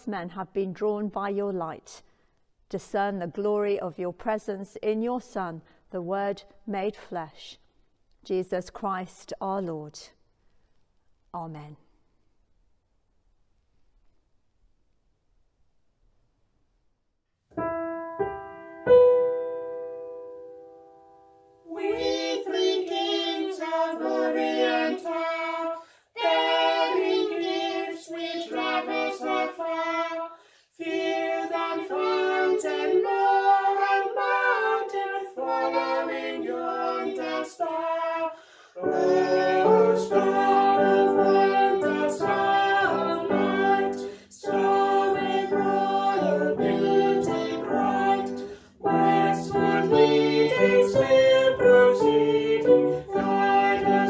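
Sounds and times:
girl singing: 21.7 - 54.0
woman singing: 39.6 - 54.0.

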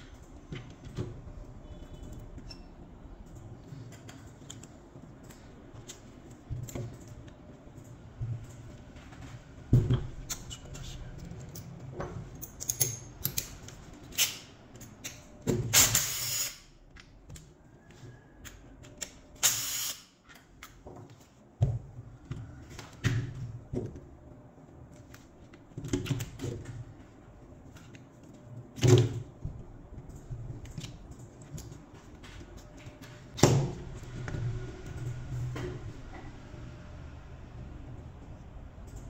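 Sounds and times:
parts clicking and knocking: 0.0 - 16.1.

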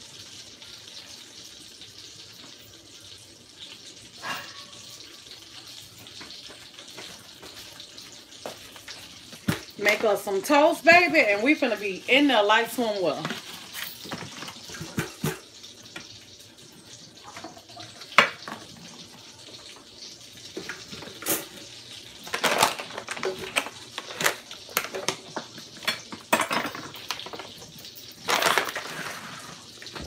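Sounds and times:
dishes and utensils clinking: 4.2 - 5.1, 13.2 - 16.1, 17.2 - 18.8, 20.5 - 21.6, 22.3 - 30.0.

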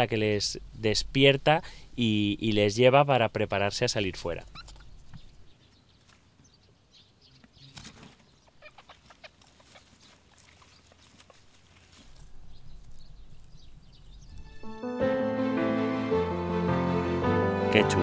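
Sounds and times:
rabbits rustling and scratching on straw: 7.5 - 14.5.

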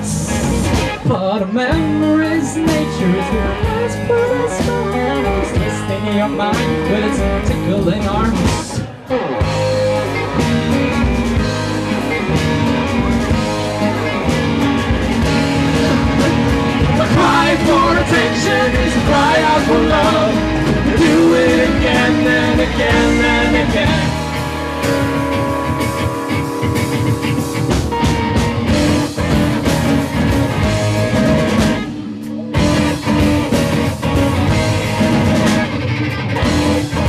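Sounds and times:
man singing: 0.0 - 8.8, 16.8 - 24.4
bass guitar: 0.0 - 37.0
electric guitars: 0.0 - 37.0.

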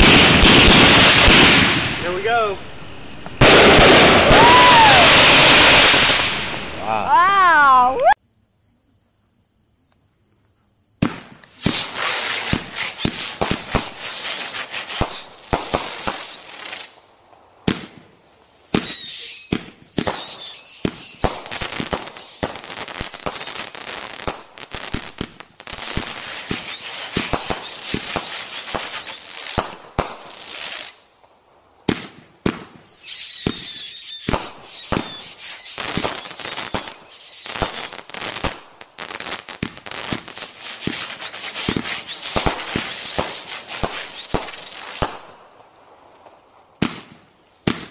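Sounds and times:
fireworks shots and crackling: 0.0 - 6.8, 11.0 - 47.9
shrill wavering whistles: 18.6 - 24.0, 32.8 - 38.1.

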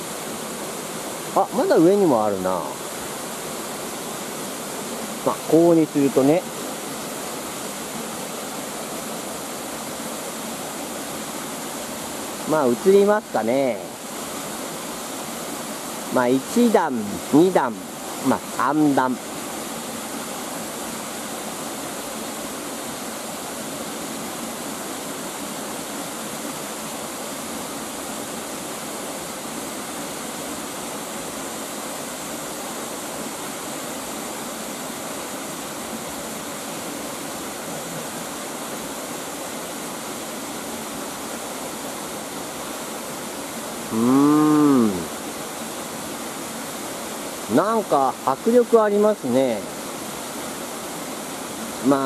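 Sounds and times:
waterfall rushing: 0.0 - 52.0
man exclaiming: 43.9 - 45.1.

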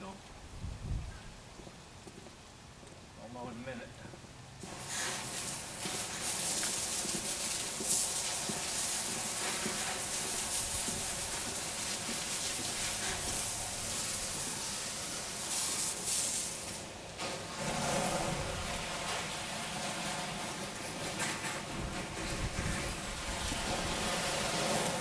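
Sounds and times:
spray gun hissing: 4.6 - 19.6, 22.6 - 25.0.

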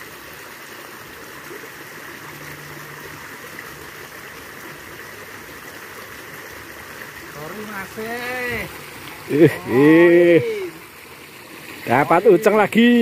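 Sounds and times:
creek water running over log: 0.0 - 13.0.

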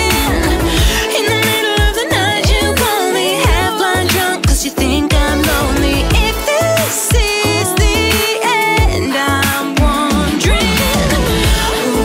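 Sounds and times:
synth bass: 0.0 - 12.0
woman singing: 0.0 - 12.0
deep kick drums: 0.1 - 1.1, 3.4 - 3.7, 4.4 - 6.4, 7.1 - 8.1, 8.8 - 9.0.

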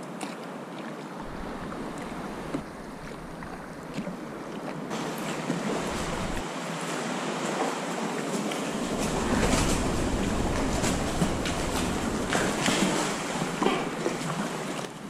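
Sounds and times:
water lapping against kayak: 0.0 - 15.0.

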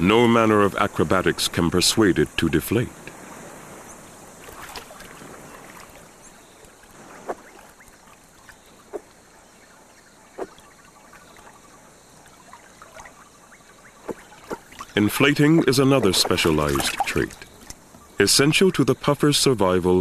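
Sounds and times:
river water trickling: 0.0 - 20.0
small splashes: 3.0 - 18.1.

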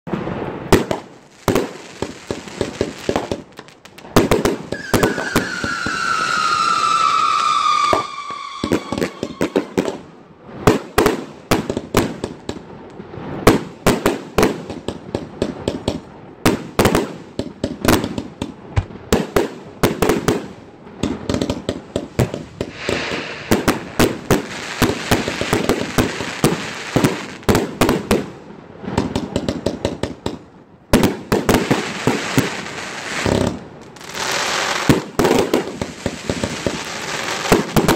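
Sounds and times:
firework launches and bursts: 0.1 - 12.2, 21.9 - 29.6
firework hiss: 4.0 - 10.0, 22.1 - 27.5
falling firework whistle: 4.7 - 10.0.

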